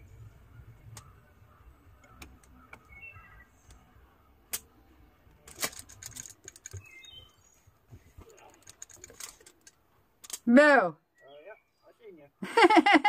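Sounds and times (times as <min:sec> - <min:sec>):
high bird chirps: 0:00.5 - 0:04.3, 0:06.7 - 0:07.8, 0:11.1 - 0:12.0.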